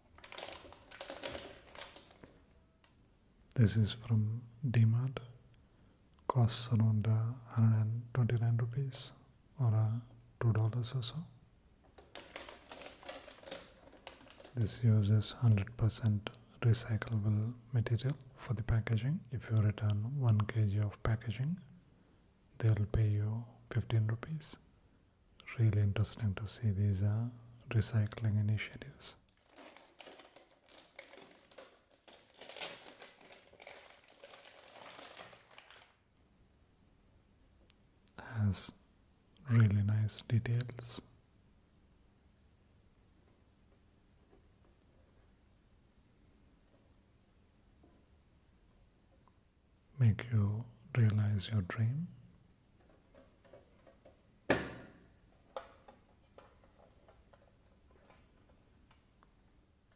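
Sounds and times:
plastic bag crinkling: 0:00.0 - 0:02.4, 0:12.0 - 0:14.8, 0:29.3 - 0:36.1.

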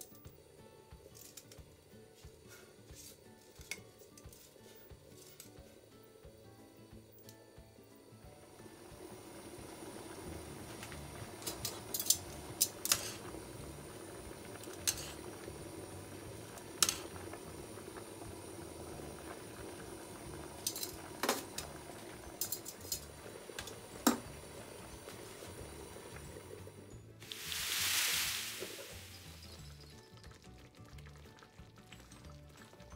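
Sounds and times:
water boiling in a pot: 0:00.0 - 0:32.9
utensil clinking against pot: 0:11.4 - 0:13.3, 0:20.6 - 0:21.7, 0:22.3 - 0:24.3.

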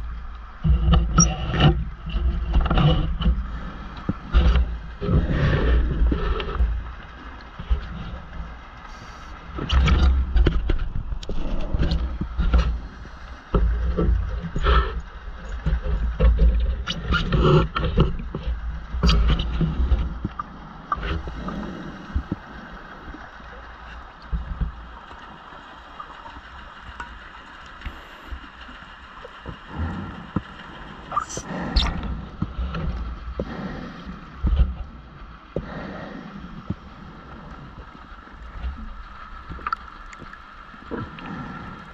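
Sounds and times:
underwater bubbling gurgle: 0:00.0 - 0:41.9
breathing through regulator: 0:33.4 - 0:34.3, 0:35.6 - 0:37.1, 0:40.9 - 0:41.9.

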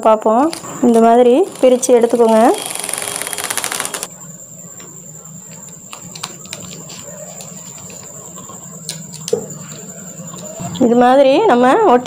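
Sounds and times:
steady low hum: 0:00.0 - 0:12.0
plastic sheet clicks and crinkles: 0:05.9 - 0:08.1.

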